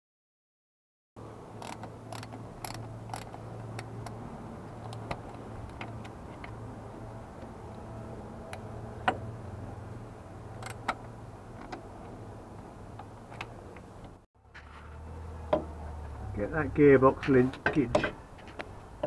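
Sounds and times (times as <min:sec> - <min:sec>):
tools clicking and tapping: 0:01.6 - 0:04.2.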